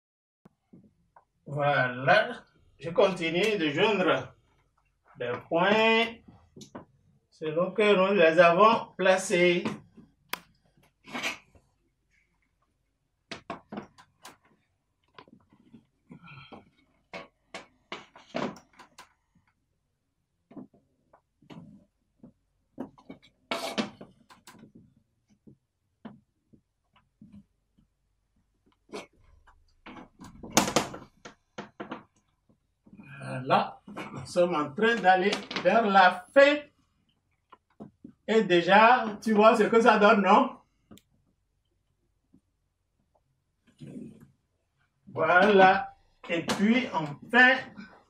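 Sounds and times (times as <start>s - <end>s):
chalk scraping on blackboard: 23.5s - 23.8s.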